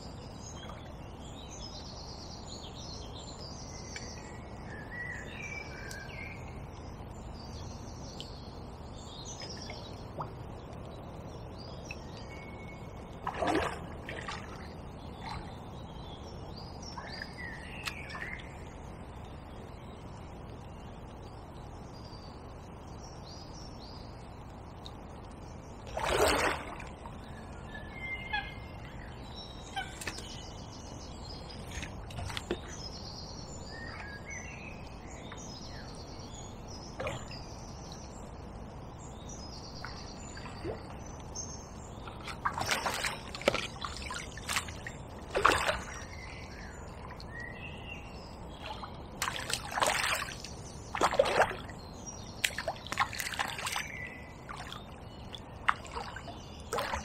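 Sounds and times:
small birds chirping: 0:00.0 - 0:57.0
fish splashing at surface: 0:42.4 - 0:46.0.

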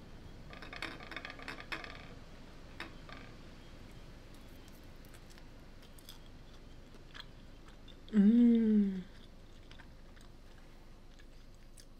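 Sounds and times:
crunchy chewing: 0:03.9 - 0:08.1, 0:09.0 - 0:11.9
person humming mmm: 0:08.1 - 0:09.2.

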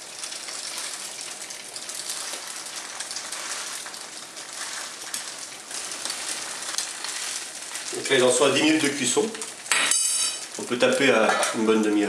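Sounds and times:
potato cakes sizzling in a pan: 0:00.0 - 0:12.0.

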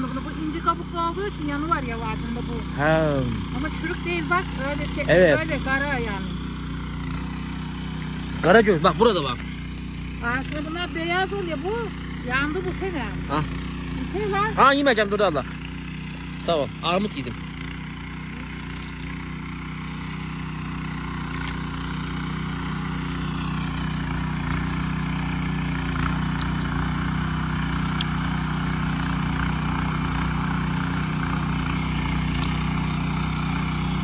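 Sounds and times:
tiller engine running: 0:00.0 - 0:34.0.

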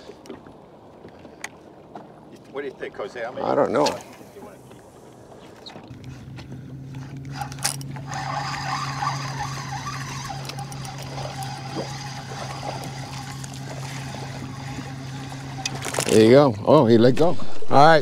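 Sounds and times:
boat motor humming: 0:00.0 - 0:18.0
fish splashing: 0:07.3 - 0:16.1.

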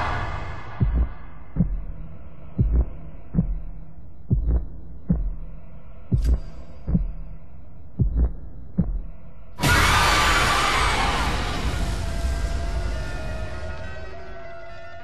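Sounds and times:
heartbeat thumps: 0:00.7 - 0:09.2.

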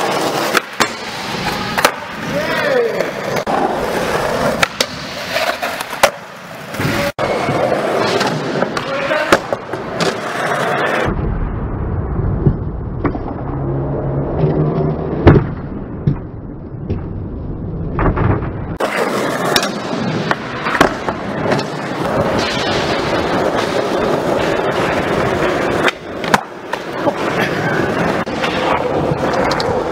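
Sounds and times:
skateboard landing crack: 0:00.0 - 0:02.2, 0:03.3 - 0:07.0, 0:25.5 - 0:27.1
skateboard clacks: 0:00.0 - 0:11.1, 0:18.0 - 0:29.9
skateboard wheels rolling: 0:00.0 - 0:11.2, 0:12.3 - 0:29.9.

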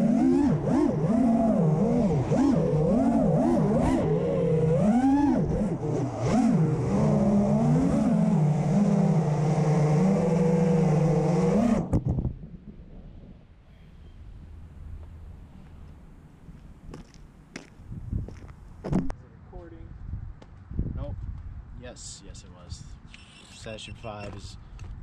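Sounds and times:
drone motors whining: 0:00.0 - 0:16.2, 0:23.1 - 0:24.4.

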